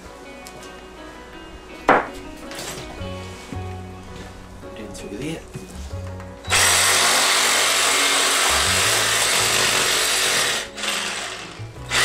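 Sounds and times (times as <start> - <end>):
reciprocating saw cutting bone: 6.5 - 12.0.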